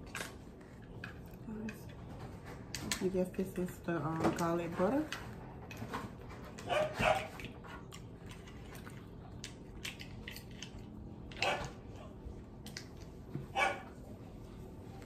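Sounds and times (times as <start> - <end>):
person chewing pizza: 6.8 - 13.2.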